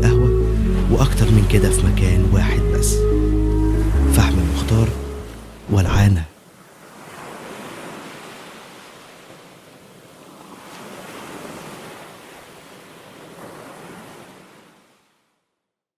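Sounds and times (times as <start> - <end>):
waves washing on beach: 4.2 - 15.3.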